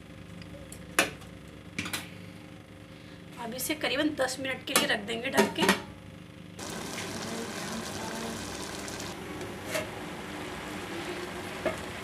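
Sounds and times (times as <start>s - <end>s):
milk boiling and bubbling: 6.6s - 12.0s.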